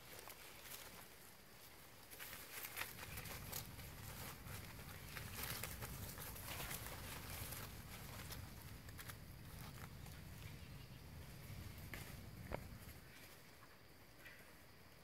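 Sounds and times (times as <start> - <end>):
dry leaves rustling and crunching: 0.0 - 10.8.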